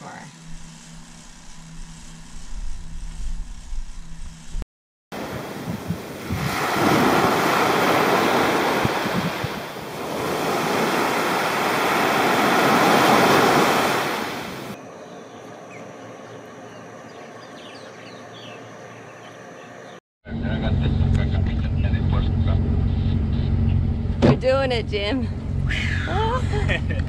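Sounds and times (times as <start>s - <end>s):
surf washing onto beach: 5.2s - 14.8s.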